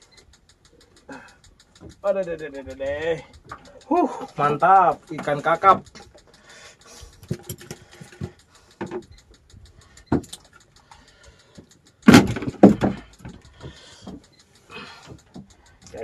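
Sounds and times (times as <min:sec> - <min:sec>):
clicks: 0:00.0 - 0:16.0
loud thumps: 0:12.0 - 0:14.1.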